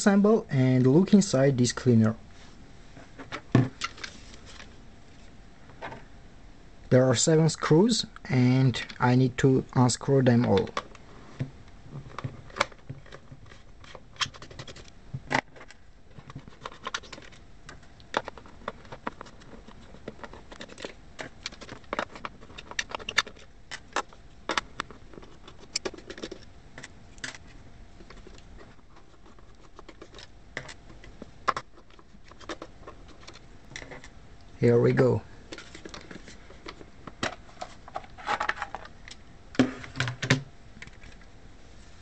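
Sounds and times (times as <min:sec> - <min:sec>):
clicks and scrapes on plastic: 0:10.4 - 0:34.2.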